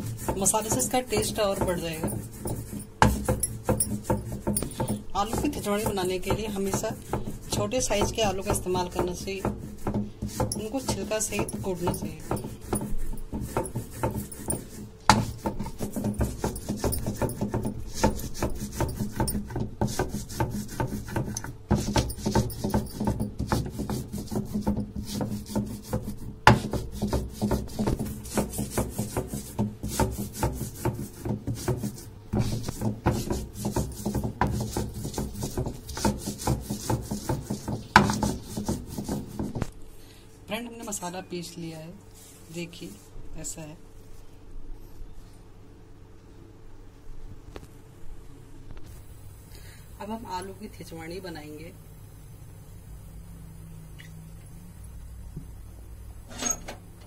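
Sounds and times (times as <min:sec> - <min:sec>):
stone roller grinding on stone: 0:00.0 - 0:39.6.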